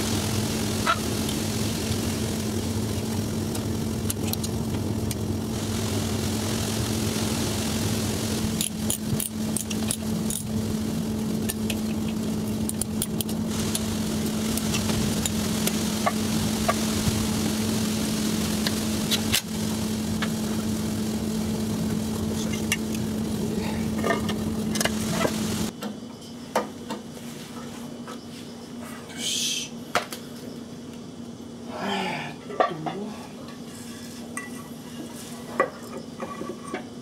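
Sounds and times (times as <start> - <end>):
small engine running: 0.0 - 25.7.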